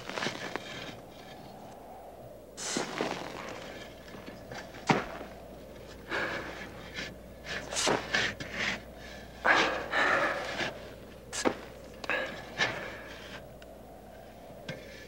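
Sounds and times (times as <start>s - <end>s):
shovel scraping soil: 0.0s - 1.0s, 2.6s - 5.2s, 7.5s - 8.8s.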